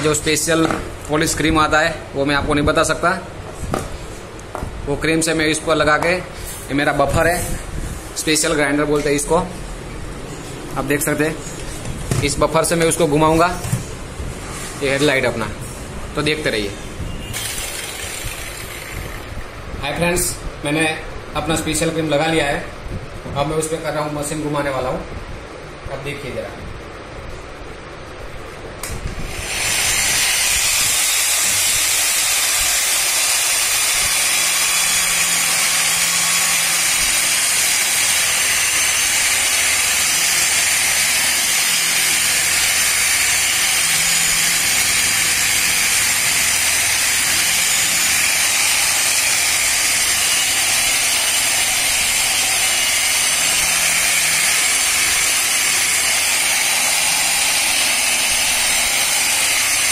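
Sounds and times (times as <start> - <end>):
rotary polisher motor whining: 17.3 - 19.3, 29.2 - 59.9.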